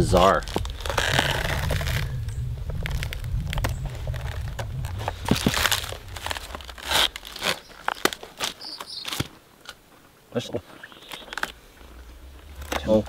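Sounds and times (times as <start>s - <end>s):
fibre tearing and rustling: 0.0s - 9.9s, 10.8s - 13.0s
sharp cracks and snaps: 0.0s - 10.1s, 10.8s - 13.0s.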